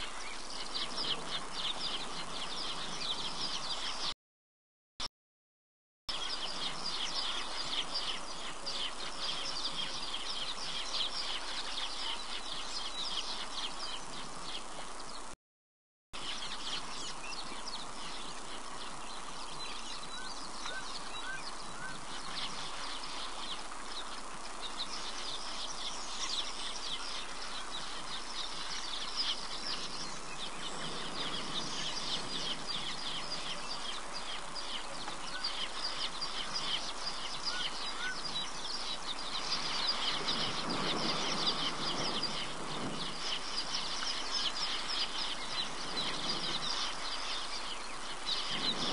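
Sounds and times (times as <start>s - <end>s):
background hiss: 16.2s - 48.9s.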